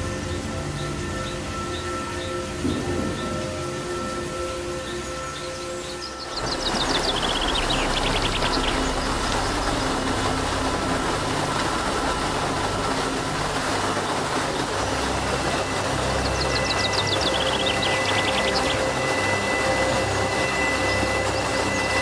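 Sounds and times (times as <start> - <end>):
water pouring down rock: 6.2 - 22.0.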